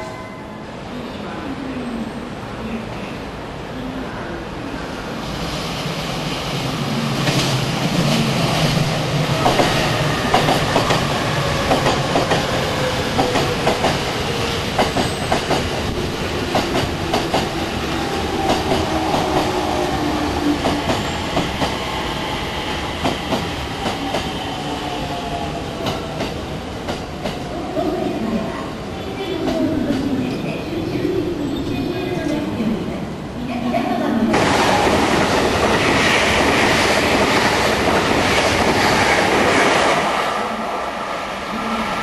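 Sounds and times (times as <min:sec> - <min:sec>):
train wheels clacking over rail joints: 0:11.7 - 0:12.6.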